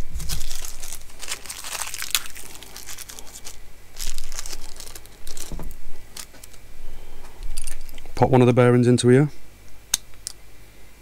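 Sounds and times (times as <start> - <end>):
hands rustling and crinkling: 0.0 - 8.0.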